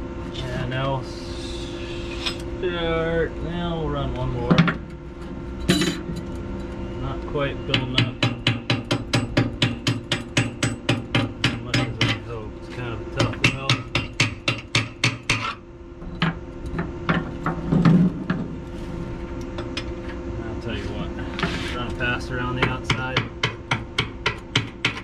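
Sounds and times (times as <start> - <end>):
chipping hammer tapping on metal: 7.7 - 12.2, 13.2 - 15.5, 22.5 - 25.0.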